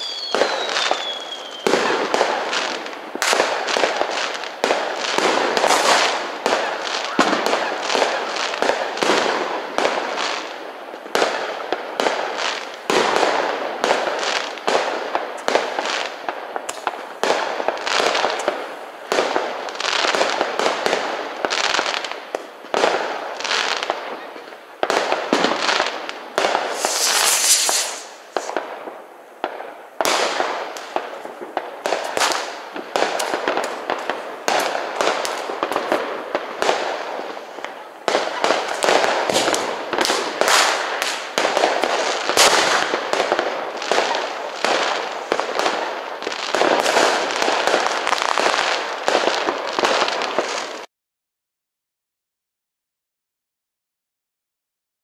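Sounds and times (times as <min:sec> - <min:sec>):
fireworks bangs and crackles: 0:00.0 - 0:50.9
loud hiss: 0:25.6 - 0:29.4.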